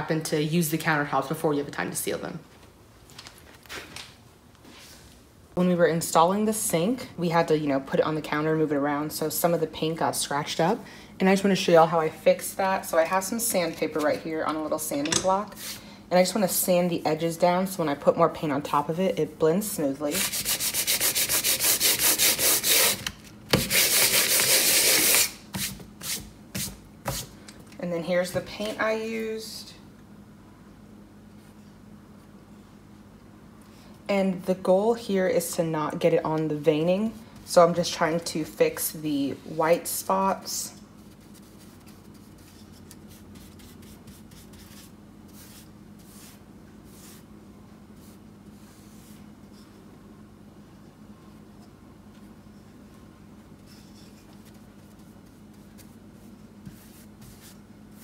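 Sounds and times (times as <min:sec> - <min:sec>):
steady low hum: 0:00.0 - 0:58.0
sandpaper sanding: 0:20.1 - 0:23.0, 0:23.6 - 0:25.4
paintbrush strokes on countertop: 0:41.0 - 0:47.3, 0:48.0 - 0:49.8, 0:53.6 - 0:58.0.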